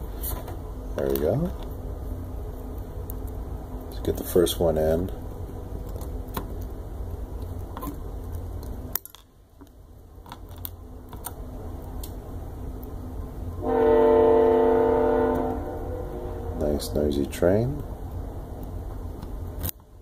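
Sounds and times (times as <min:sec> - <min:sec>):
train horn blast: 0:13.6 - 0:16.8.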